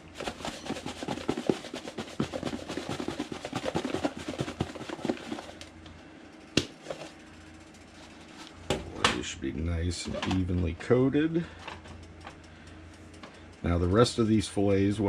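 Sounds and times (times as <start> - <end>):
food rattling in plastic container: 0.1 - 5.6.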